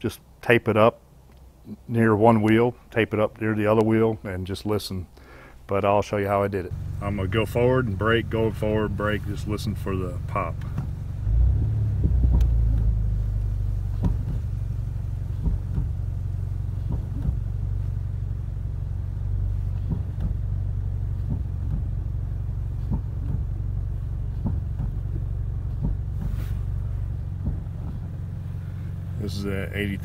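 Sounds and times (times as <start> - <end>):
car engine and road rumble: 0.0 - 30.0.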